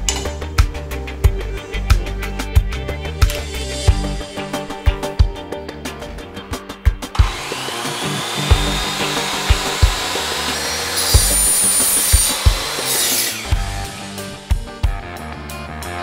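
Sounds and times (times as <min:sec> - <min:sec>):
background music with steady beat: 0:00.0 - 0:16.0
mitre saw motor whine: 0:07.1 - 0:14.4
saw blade cutting aluminium: 0:07.2 - 0:14.4.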